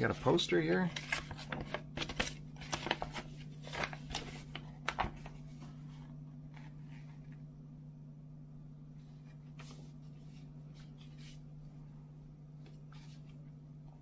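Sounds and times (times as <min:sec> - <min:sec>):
paper rustling and crackling: 0:00.0 - 0:05.8.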